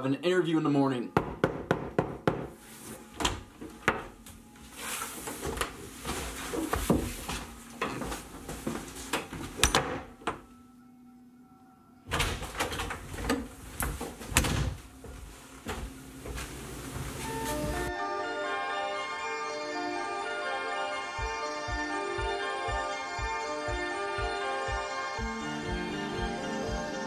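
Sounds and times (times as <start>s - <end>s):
knocking on door: 1.2s - 2.6s
door opening and shutting: 12.1s - 14.9s.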